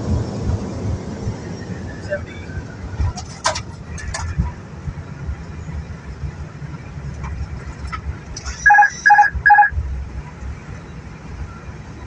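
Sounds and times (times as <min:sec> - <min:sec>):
airplane landing rumble: 0:00.0 - 0:12.0
short electronic beeps: 0:08.4 - 0:09.8.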